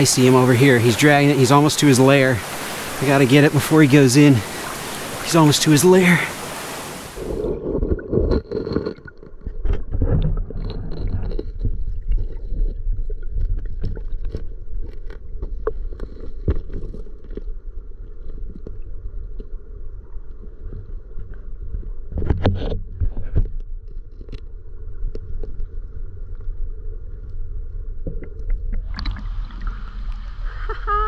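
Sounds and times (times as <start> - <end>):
muffled underwater water rush: 0.0 - 31.0
small clicks and taps underwater: 7.8 - 27.4, 28.0 - 29.2.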